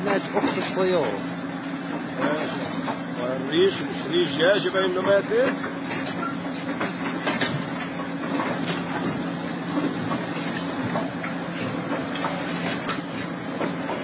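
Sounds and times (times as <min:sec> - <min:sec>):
heavy diesel machinery humming: 0:00.0 - 0:14.0.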